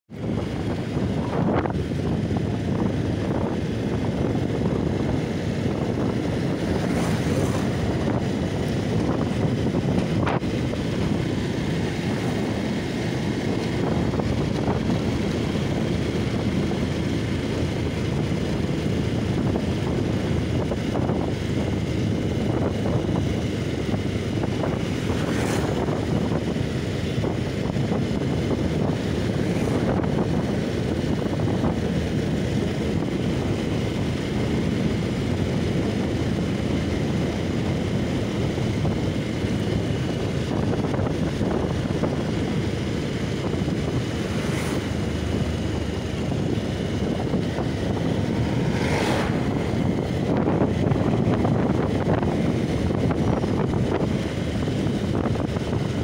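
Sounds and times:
motorcycle running: 0.0 - 56.0
road noise: 0.0 - 56.0
wind rushing on microphone: 0.1 - 56.0.

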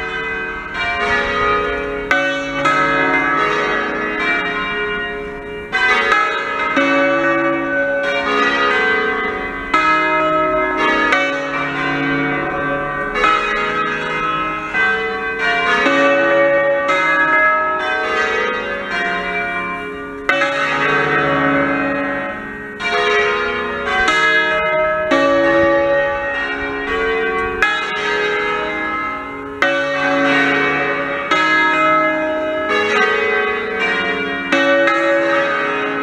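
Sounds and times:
church bells pealing: 0.0 - 36.0.

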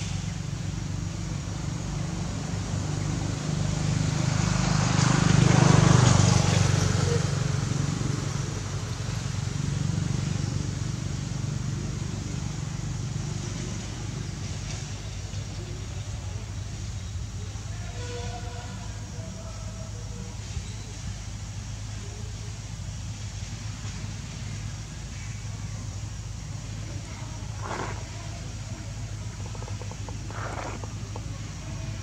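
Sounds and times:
vehicle engine passing by: 0.0 - 15.1, 26.2 - 32.0.

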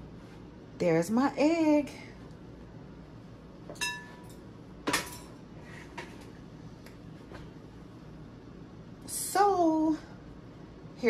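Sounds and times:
glass kitchenware clinking: 3.8 - 4.4.

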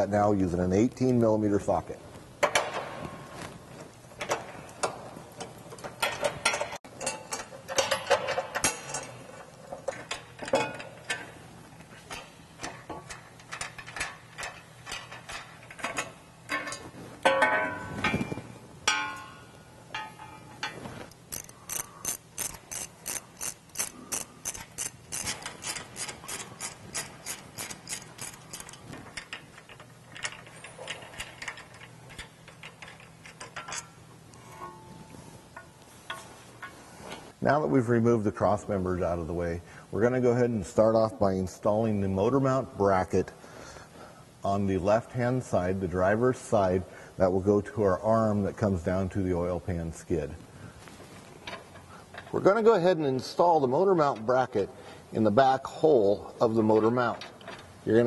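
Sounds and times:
hand ratchet clicking: 21.2 - 28.8.

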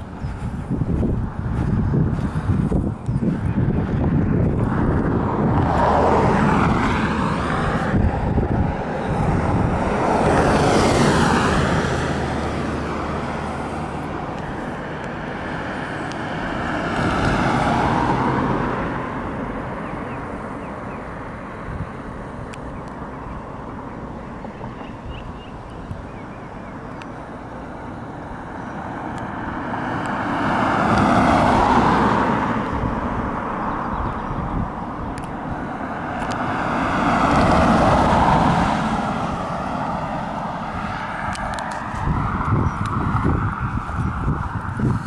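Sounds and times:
cars passing: 0.0 - 45.0.

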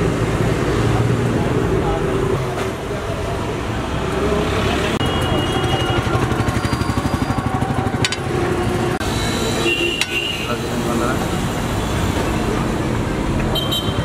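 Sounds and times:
street traffic: 0.0 - 14.0
small engine chugging: 5.7 - 8.3.

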